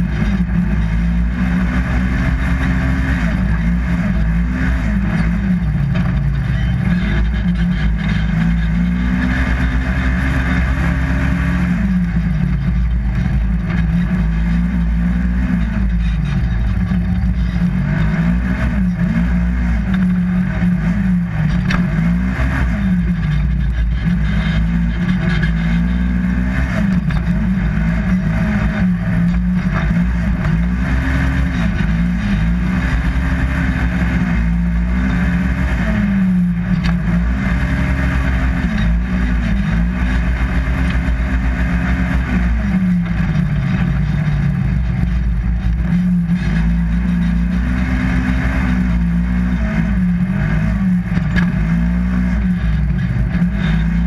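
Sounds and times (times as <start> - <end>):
engine revving: 0.0 - 54.0.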